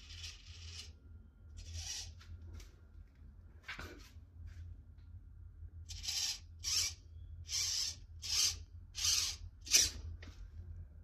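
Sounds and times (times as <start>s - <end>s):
servo whirring: 0.0s - 1.0s, 1.6s - 2.2s, 5.9s - 10.1s.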